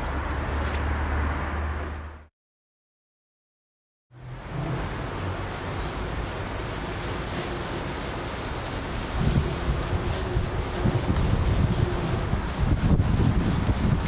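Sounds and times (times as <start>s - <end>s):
steady hiss: 4.5s - 14.0s
spray bottle squirting: 6.6s - 14.0s.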